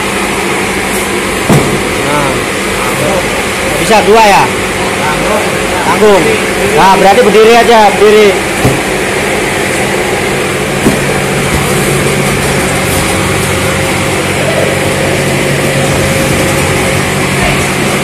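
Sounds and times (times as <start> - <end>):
machinery humming: 0.0 - 18.0
carton knock: 1.4 - 1.9, 8.6 - 8.9, 10.8 - 11.7.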